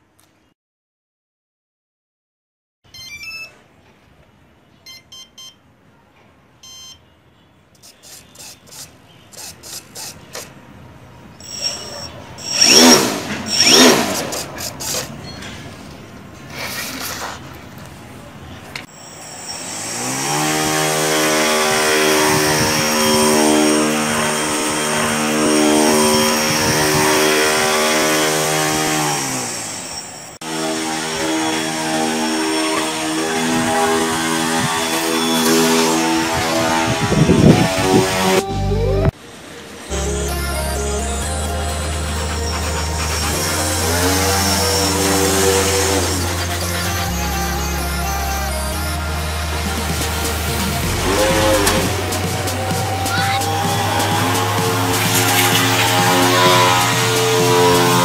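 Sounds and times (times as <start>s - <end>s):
short high beeps: 2.9s - 3.6s, 4.8s - 5.6s, 6.6s - 7.0s, 11.4s - 13.0s, 18.9s - 19.7s
electric motor propeller buzz: 11.4s - 15.1s, 19.1s - 38.4s, 40.8s - 58.0s.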